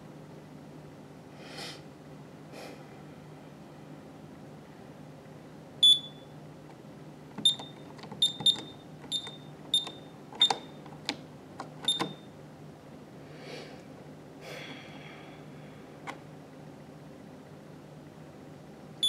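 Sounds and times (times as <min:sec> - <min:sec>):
keypad beeps: 0:05.8 - 0:06.3, 0:07.4 - 0:10.8, 0:11.8 - 0:12.3.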